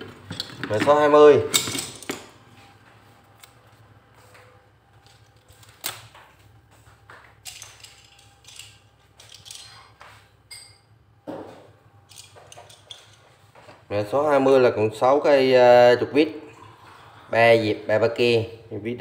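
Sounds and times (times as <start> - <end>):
screwdrivers clicking and knocking: 7.4 - 10.8, 12.1 - 13.3.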